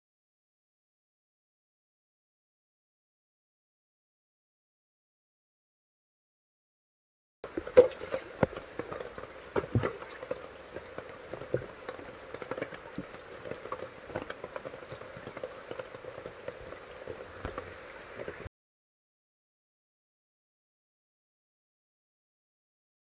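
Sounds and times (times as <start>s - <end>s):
rain on wet stone: 7.4s - 18.5s
drops plinking into puddle: 7.5s - 16.3s.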